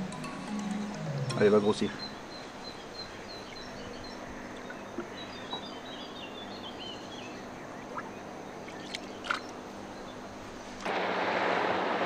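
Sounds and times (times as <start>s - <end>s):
birds chirping: 0.0s - 10.6s
outdoor background noise: 0.0s - 12.0s.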